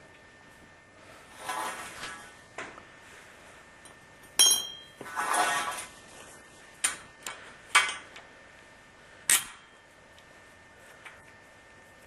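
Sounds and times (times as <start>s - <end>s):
metal pipe clinking on concrete: 4.4s - 5.0s.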